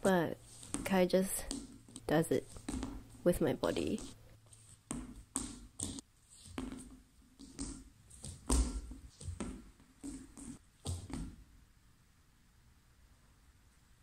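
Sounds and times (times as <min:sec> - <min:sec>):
heels and hands striking ball: 0:00.4 - 0:11.4.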